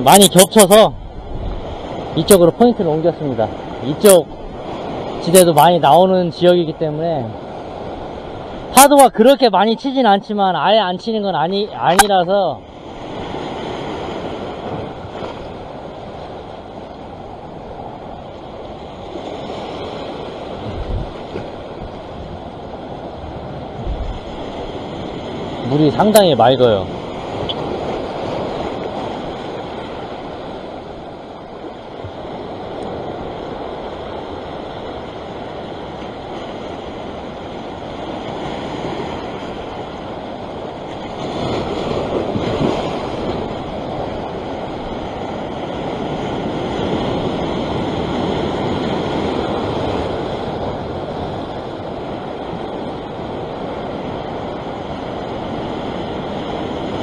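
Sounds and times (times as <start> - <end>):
sea swell washing over rocks: 12.0 - 57.0.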